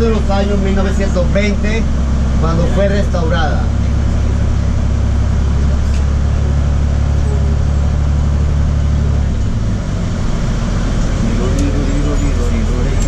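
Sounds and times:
bus engine drone: 0:00.0 - 0:13.0.

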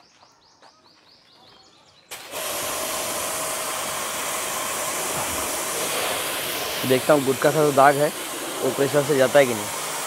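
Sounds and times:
pressure washer water jet hissing: 0:02.1 - 0:10.0.

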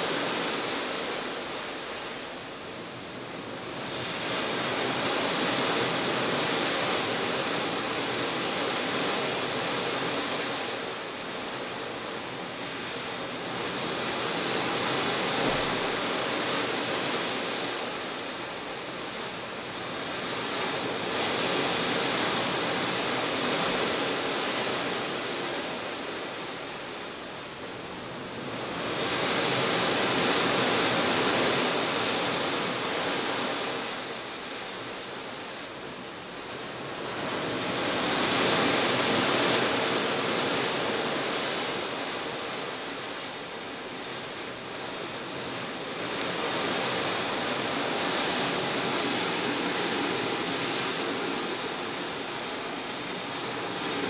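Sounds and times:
water rushing along ship hull: 0:00.0 - 0:54.0.

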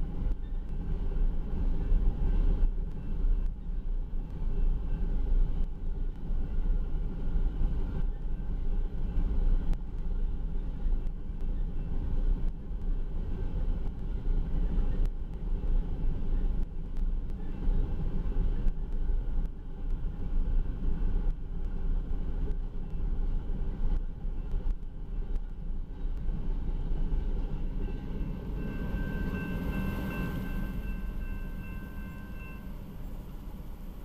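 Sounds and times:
train wheels rumbling on rails: 0:00.0 - 0:34.0
crossing signal bell ringing: 0:27.6 - 0:34.0.

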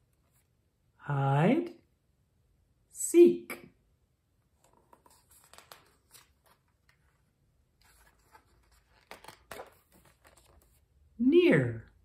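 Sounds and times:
page turning: 0:04.6 - 0:10.9
paper pages rustling: 0:04.6 - 0:10.9.

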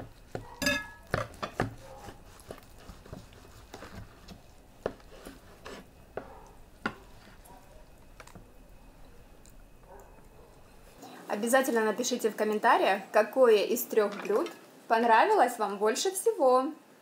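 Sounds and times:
cutlery and dishes clicking: 0:00.6 - 0:01.7.

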